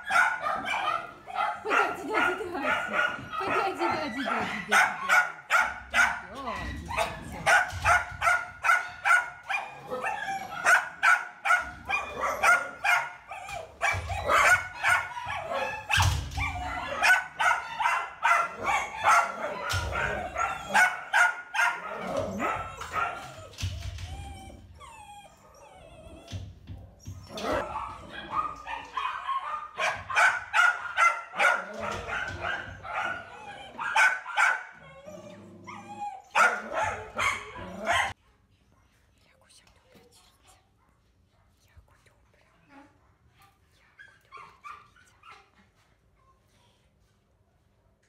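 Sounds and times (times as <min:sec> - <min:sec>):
dogs barking rapidly: 0:00.0 - 0:23.5, 0:27.3 - 0:35.0, 0:35.7 - 0:38.2.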